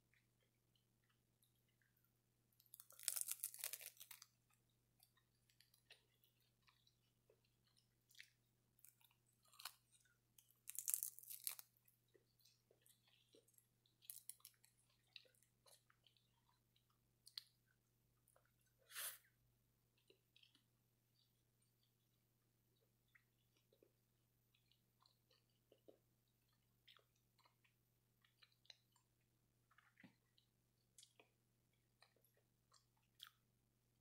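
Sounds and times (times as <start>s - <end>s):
soft chewing clicks: 0.1s - 18.8s, 19.9s - 33.5s
crunching dried seaweed: 2.7s - 4.3s, 10.6s - 11.7s.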